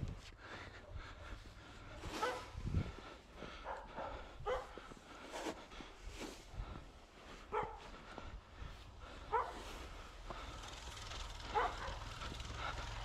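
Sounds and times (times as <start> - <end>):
dog barking: 2.2 - 2.6, 3.5 - 4.8, 7.5 - 8.0, 9.2 - 9.7, 11.4 - 12.3.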